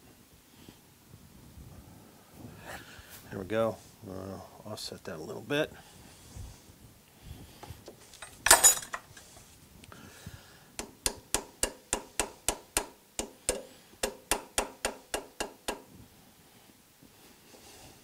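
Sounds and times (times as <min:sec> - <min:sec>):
metal clatter: 0:08.0 - 0:09.4.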